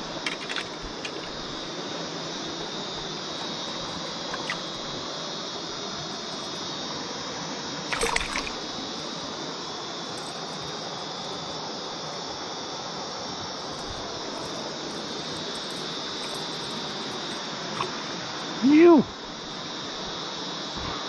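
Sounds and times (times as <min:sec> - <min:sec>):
river water rushing: 0:00.0 - 0:06.8, 0:07.9 - 0:18.6.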